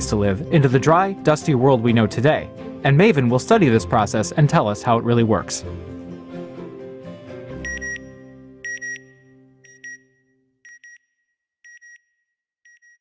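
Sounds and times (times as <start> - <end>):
electronic beeps in pairs: 7.7 - 8.1, 8.7 - 10.1.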